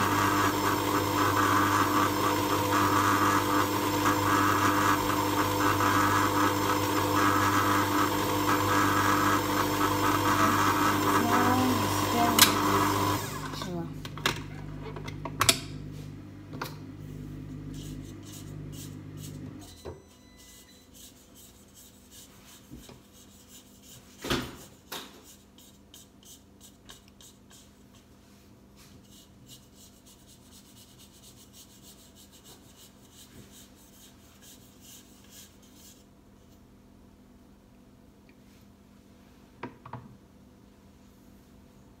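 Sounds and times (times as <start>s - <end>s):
stand mixer motor humming: 0.0s - 13.7s, 16.8s - 19.6s
spatula scraping metal bowl: 17.6s - 19.8s.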